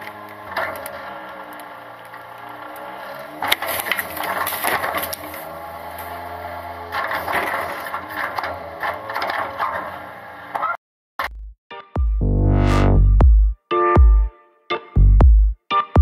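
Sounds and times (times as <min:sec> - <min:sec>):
cart clattering against lift: 0:00.0 - 0:09.9
hydraulic cart tipper whine: 0:00.0 - 0:10.5.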